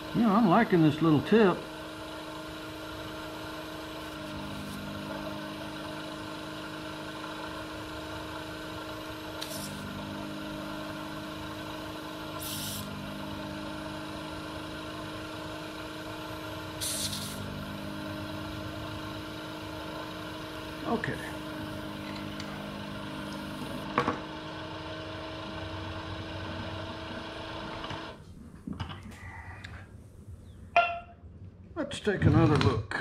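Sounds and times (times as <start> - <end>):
vacuum pump humming: 0.0 - 28.3
short suction hisses: 12.4 - 12.9, 16.8 - 17.5.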